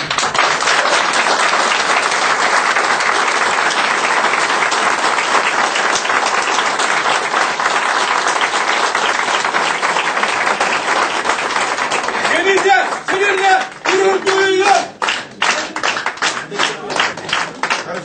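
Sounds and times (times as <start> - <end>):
audience applauding: 0.0 - 18.0.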